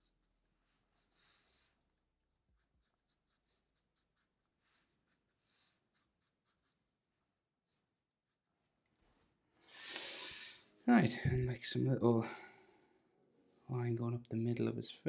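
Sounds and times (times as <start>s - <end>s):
marker scratching on paper: 0.0s - 9.1s, 10.2s - 11.1s.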